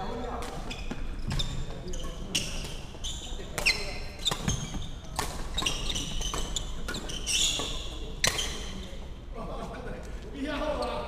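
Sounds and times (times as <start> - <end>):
shoes squeaking on wooden floor: 0.6 - 8.9.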